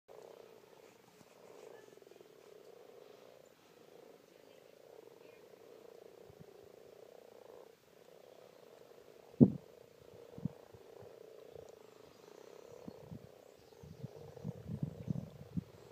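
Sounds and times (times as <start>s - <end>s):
frogs croaking chorus: 0.1s - 15.9s.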